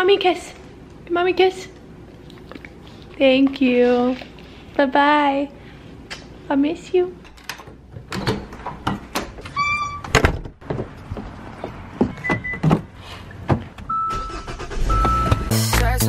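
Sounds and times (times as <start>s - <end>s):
footsteps on wooden steps: 10.4s - 13.9s
short beep: 13.9s - 15.5s.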